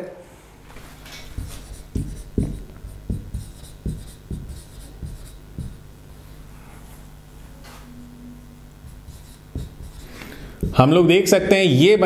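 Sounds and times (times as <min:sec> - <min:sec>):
marker writing on a whiteboard: 0:01.2 - 0:05.9, 0:08.8 - 0:10.9.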